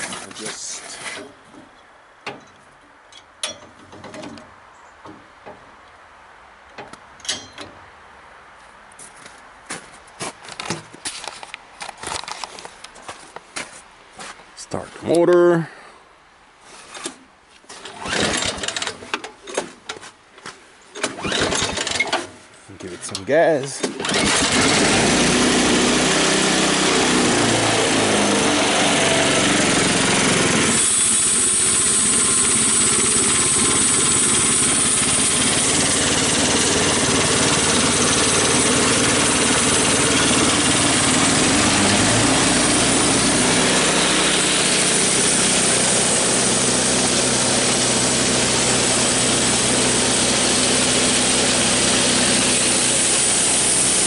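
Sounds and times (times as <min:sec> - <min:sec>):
small engine revving: 0:17.8 - 0:19.0, 0:21.0 - 0:22.1, 0:24.0 - 0:54.0
band saw blade hissing: 0:30.7 - 0:35.4.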